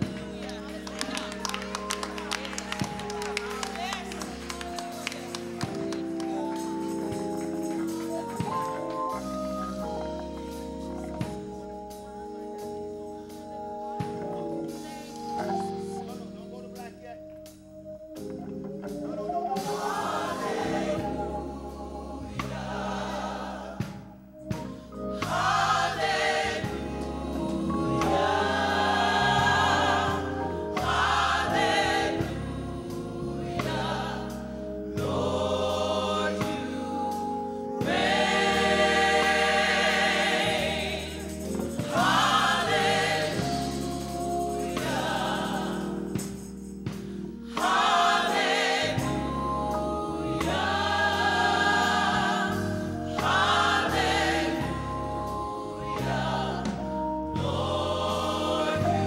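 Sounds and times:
gospel choir singing: 0:00.0 - 0:59.0
sustained low accompaniment: 0:00.0 - 0:59.0.

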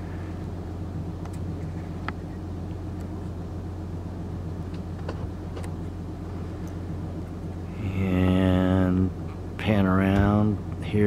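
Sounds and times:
boat engine droning: 0:00.0 - 0:11.0.

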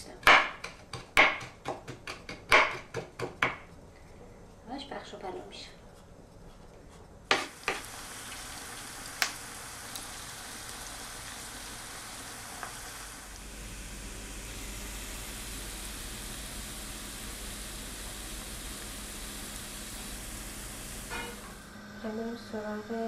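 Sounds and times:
onions sizzling in oil: 0:07.3 - 0:21.7
garlic frying in oil: 0:07.4 - 0:21.6
low hum: 0:13.2 - 0:23.0.

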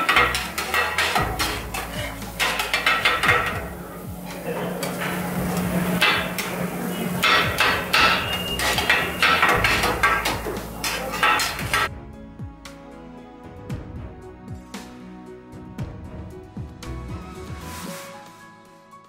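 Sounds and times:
metal blades clanging on griddle: 0:00.0 - 0:11.9.

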